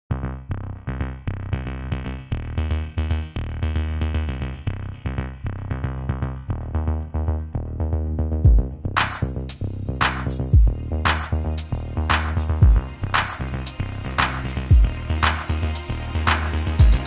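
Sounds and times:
music with quick repeated notes: 0:08.4 - 0:17.0.

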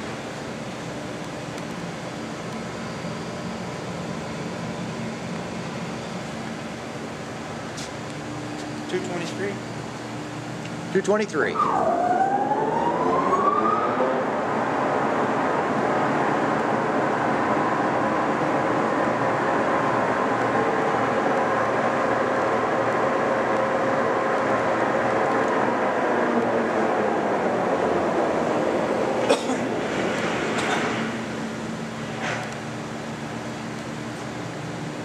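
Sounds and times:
machinery hum: 0:00.0 - 0:35.0.

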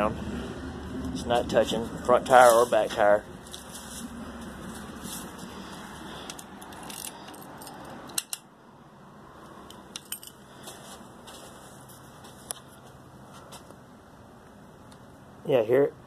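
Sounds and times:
keys jingling: 0:06.7 - 0:08.3, 0:10.0 - 0:10.4.

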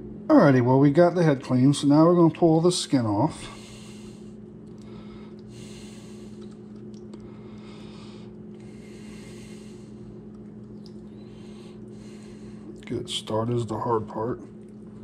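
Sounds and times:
low electrical hum: 0:00.0 - 0:15.0
man breathing slowly: 0:03.4 - 0:06.6, 0:07.2 - 0:10.2, 0:11.1 - 0:12.8
faint small clicks: 0:10.3 - 0:11.1.

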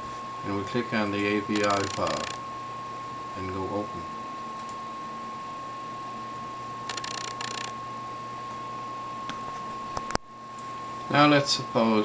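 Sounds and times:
faint high hum: 0:00.0 - 0:12.0
rapid mechanical ticking: 0:01.5 - 0:02.4, 0:06.9 - 0:07.7.

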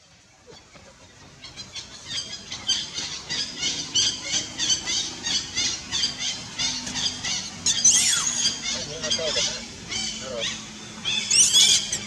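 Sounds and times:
monkey squealing: 0:07.0 - 0:12.0.

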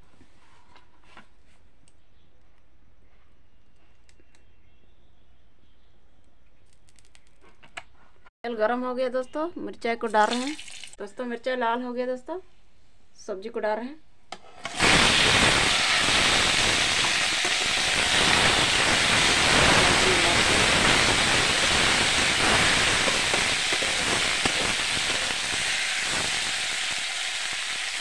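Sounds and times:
vegetables sizzling in hot oil: 0:10.2 - 0:11.0, 0:14.6 - 0:28.0.

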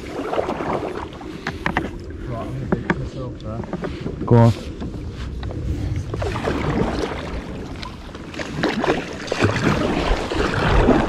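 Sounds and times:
kayak paddle splashing water: 0:00.0 - 0:11.0.

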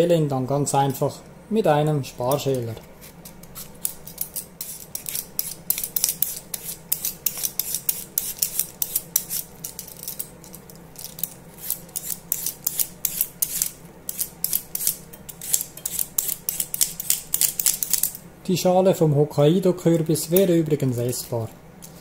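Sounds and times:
peeler scraping pumpkin rind: 0:02.3 - 0:10.3, 0:11.0 - 0:18.0.

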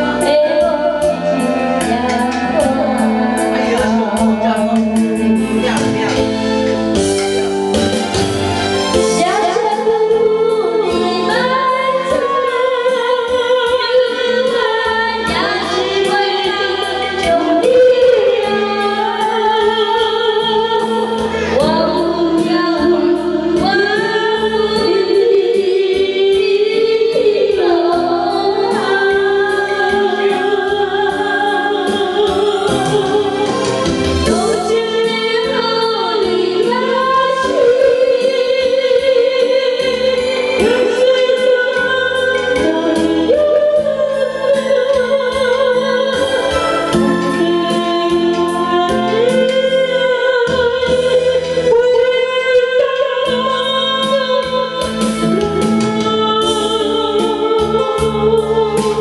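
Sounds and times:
woman singing with vibrato: 0:00.0 - 0:06.2, 0:08.8 - 0:59.0.

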